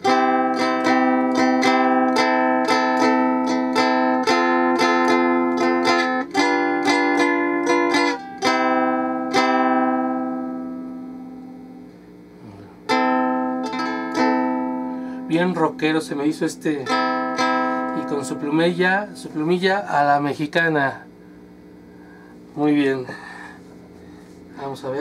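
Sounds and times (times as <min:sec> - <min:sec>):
electric ukulele strummed chords: 0:00.0 - 0:20.2.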